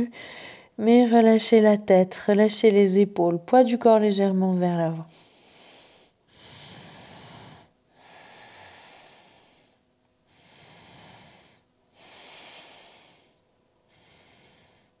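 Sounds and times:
woman breathing deeply: 0:00.0 - 0:00.8, 0:05.1 - 0:15.0.

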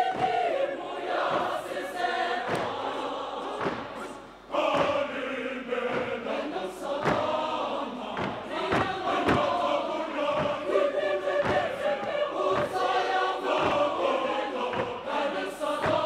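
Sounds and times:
mixed choir singing: 0:00.0 - 0:16.0.

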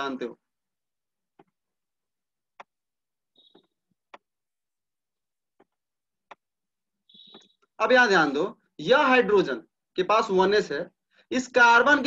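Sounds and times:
faint high beep: 0:03.4 - 0:03.8, 0:07.1 - 0:07.6.

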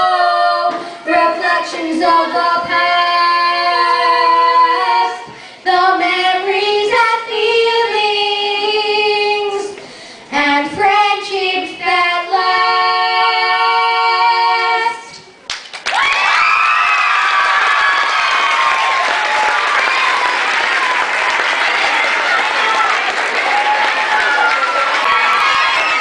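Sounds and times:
children singing into microphones: 0:00.0 - 0:15.3.

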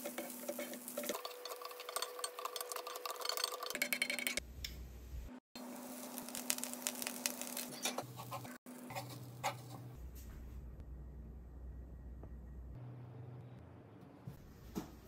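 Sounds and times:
spatula scraping rice in pan: 0:06.4 - 0:09.9.

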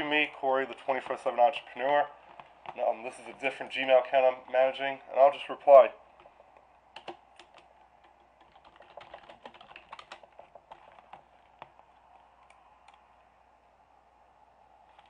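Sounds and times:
typing on computer keyboard: 0:06.9 - 0:11.7.

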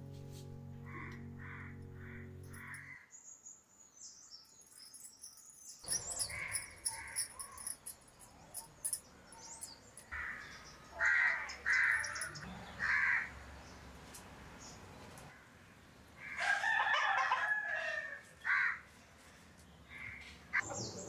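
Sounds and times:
crows cawing: 0:00.9 - 0:03.0, 0:06.2 - 0:07.7, 0:10.1 - 0:13.4, 0:16.2 - 0:18.9, 0:19.9 - 0:20.6
small birds chirping: 0:03.2 - 0:13.9.

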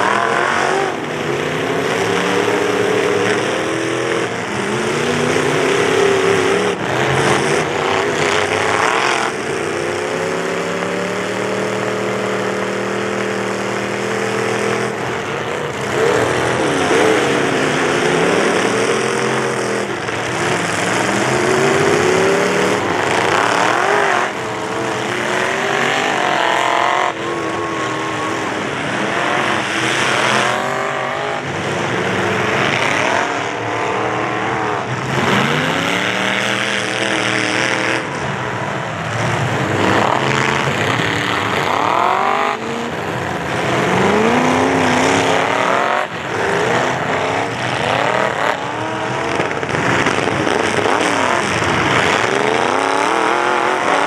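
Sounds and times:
truck engines revving hard: 0:00.0 - 0:54.0.

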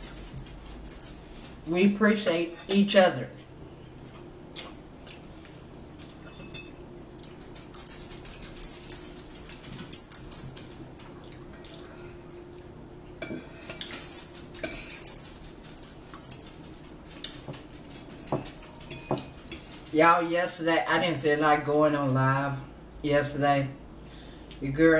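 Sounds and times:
faint steady hum: 0:00.0 - 0:24.9
forks clinking on plates: 0:06.0 - 0:10.8, 0:13.2 - 0:19.9.

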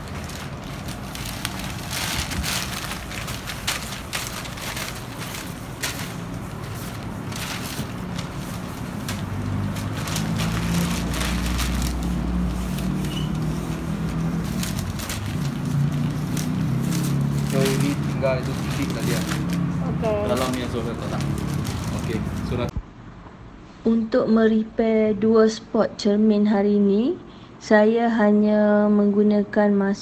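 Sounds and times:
newspaper rubbing on windscreen: 0:00.0 - 0:22.7
low engine hum: 0:00.0 - 0:22.8.

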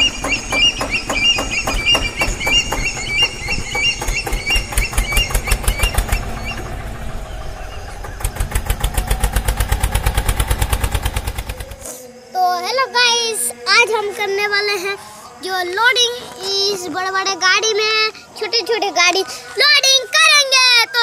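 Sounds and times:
engine chugging: 0:00.0 - 0:11.9.

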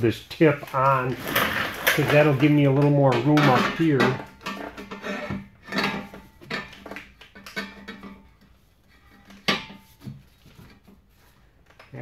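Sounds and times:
metal pipes clanking together: 0:01.1 - 0:10.1.

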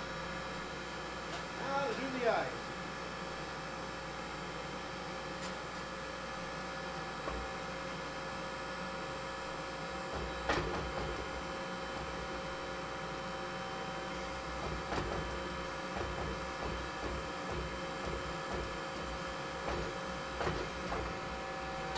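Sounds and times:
hydraulic press humming: 0:09.7 - 0:21.9.

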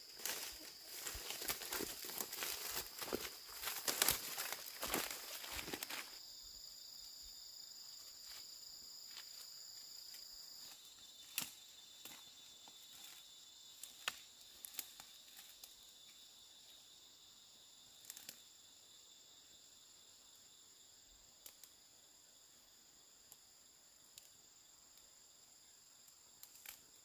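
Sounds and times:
rustling: 0:00.0 - 0:06.2
insects chirring: 0:00.0 - 0:27.0.

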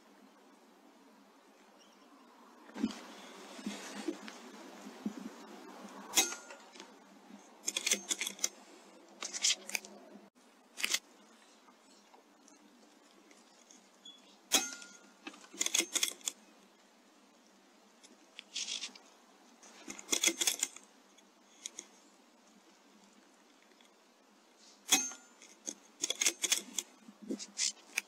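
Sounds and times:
quick metallic clicks and rattles: 0:07.6 - 0:10.0, 0:14.5 - 0:16.4, 0:19.8 - 0:20.9, 0:24.9 - 0:28.0.

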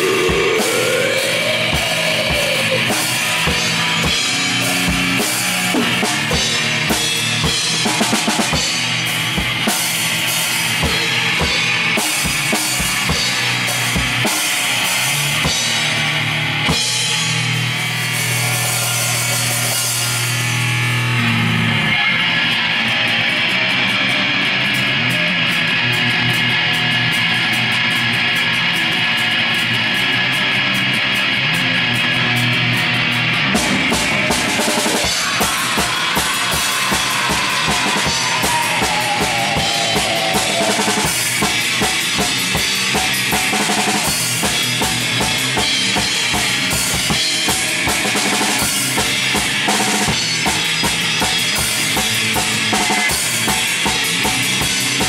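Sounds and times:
growled vocal: 0:00.0 - 0:04.2, 0:34.6 - 0:41.4
drum kit playing: 0:00.0 - 0:22.7, 0:32.2 - 0:55.0
distorted electric guitar: 0:00.0 - 0:55.0.

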